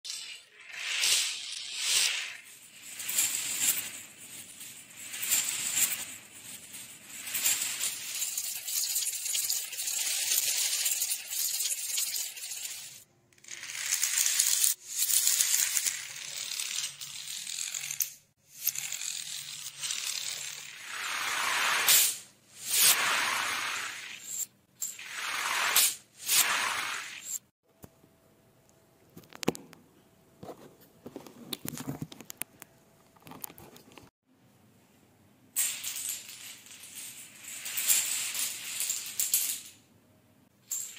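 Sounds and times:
wooden dominoes toppling: 0.1s - 27.4s.

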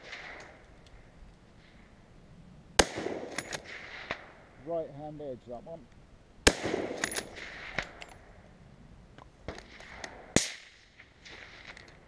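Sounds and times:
rifle shots: 0.0s - 0.6s, 2.8s - 4.4s, 6.4s - 8.2s, 9.5s - 12.0s.

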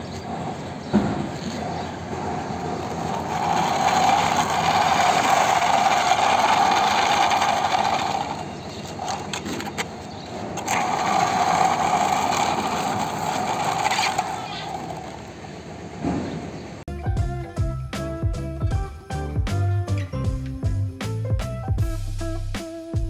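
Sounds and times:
toy wheels whirring on concrete: 1.3s - 15.5s.

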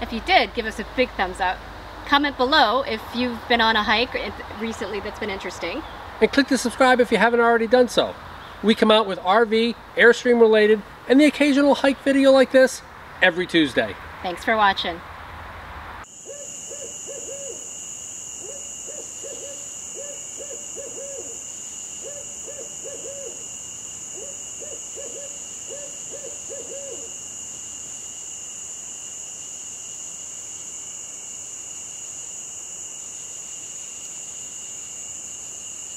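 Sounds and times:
night insects droning: 0.0s - 35.9s
owl hooting: 16.1s - 17.8s, 18.4s - 27.2s.

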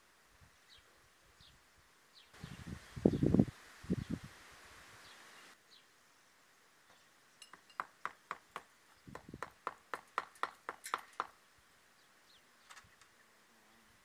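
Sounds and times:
hand tool tapping on stone: 7.4s - 11.4s.

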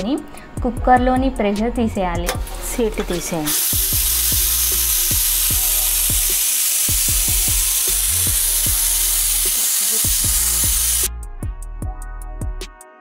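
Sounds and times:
steam hissing from pressure cooker: 2.3s - 11.1s.

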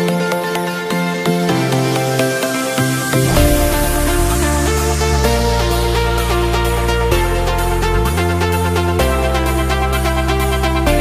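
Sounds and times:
sustained synth notes: 3.2s - 7.4s
deep bass line: 3.2s - 11.0s.

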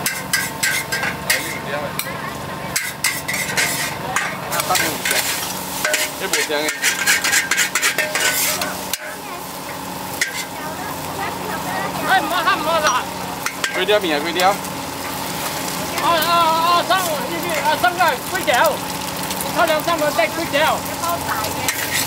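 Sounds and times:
metal utensils scraping a wok: 0.0s - 10.6s, 12.7s - 16.1s, 20.0s - 22.0s
noodles sizzling: 0.0s - 22.0s.

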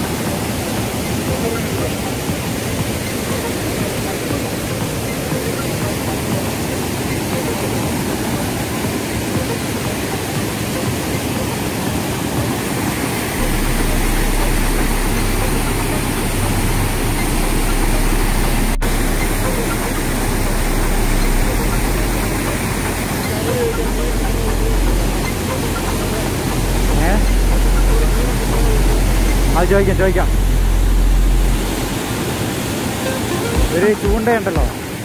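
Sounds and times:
deep rumble: 13.4s - 32.1s.

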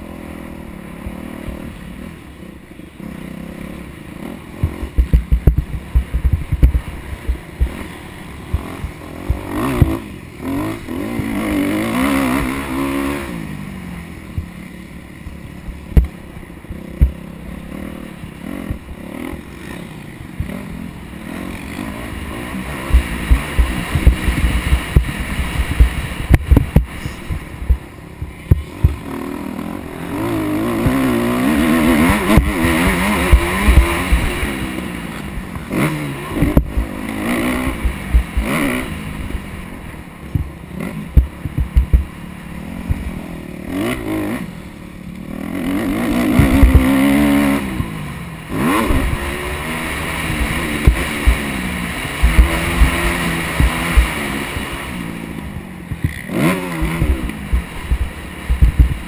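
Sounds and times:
motocross bike engine revving: 0.0s - 59.0s
sharp thumps over bumps: 4.6s - 10.1s, 14.3s - 14.6s, 15.2s - 17.3s, 18.6s - 19.0s, 22.7s - 29.1s, 30.6s - 38.7s, 40.2s - 42.2s, 42.8s - 43.2s, 46.1s - 48.0s, 48.7s - 59.0s.

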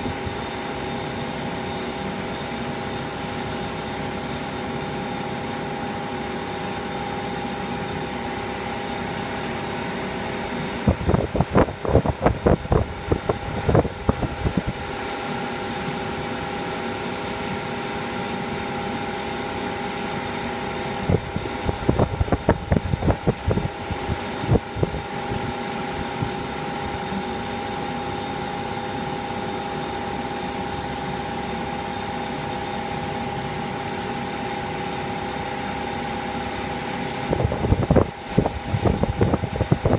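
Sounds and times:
spray gun hissing: 0.0s - 4.6s, 13.7s - 17.7s, 19.0s - 39.9s
fan humming: 0.0s - 39.9s.

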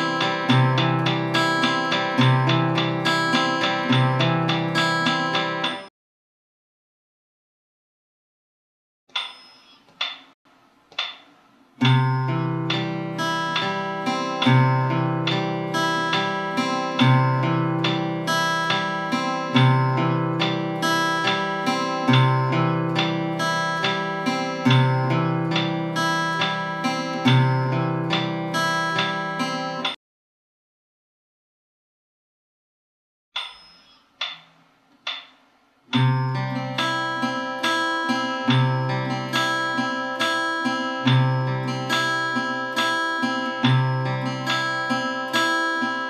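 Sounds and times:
acoustic guitar fingerpicking: 0.0s - 5.9s, 11.8s - 30.0s, 35.9s - 46.0s.

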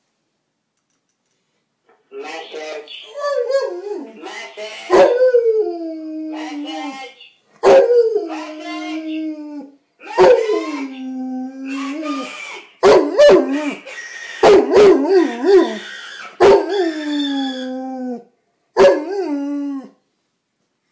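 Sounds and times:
dog howling: 3.2s - 4.2s, 4.9s - 6.9s, 7.6s - 19.9s.

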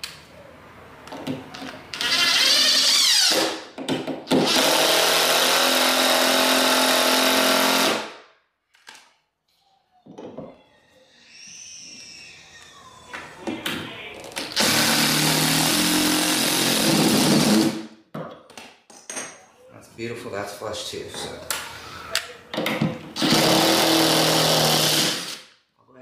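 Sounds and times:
cordless drill driving a screw: 1.9s - 3.5s, 4.3s - 8.0s, 14.4s - 17.8s, 23.2s - 25.5s.

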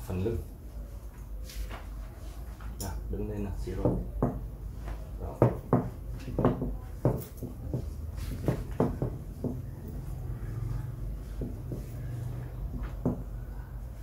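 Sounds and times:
paws knocking on mesh cot: 5.4s - 9.7s.

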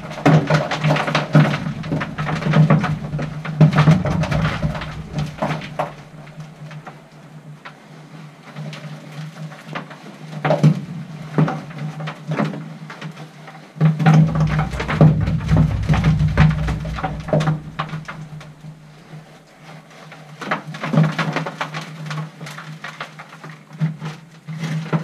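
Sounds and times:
low rumble: 0.0s - 6.8s, 14.1s - 19.0s.

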